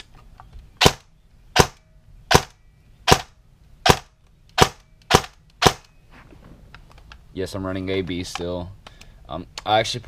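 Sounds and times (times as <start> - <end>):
airsoft rifle shots: 0.8 - 5.9.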